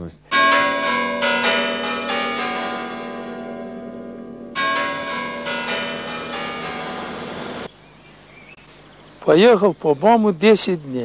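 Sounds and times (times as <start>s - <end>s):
bells ringing: 0.3s - 7.7s.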